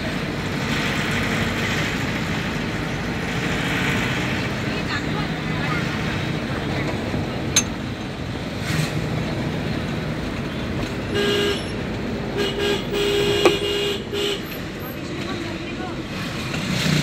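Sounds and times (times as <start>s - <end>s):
road noise inside vehicle: 0.0s - 17.0s
vehicle horn honking: 11.1s - 11.7s, 12.4s - 14.6s.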